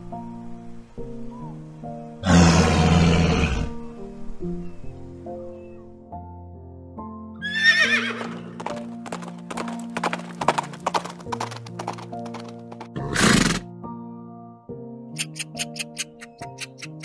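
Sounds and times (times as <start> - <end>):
background music: 0.0 - 17.0
horse whinnying: 2.2 - 3.8, 7.4 - 8.7, 13.0 - 13.7
hoofbeats: 7.4 - 13.7.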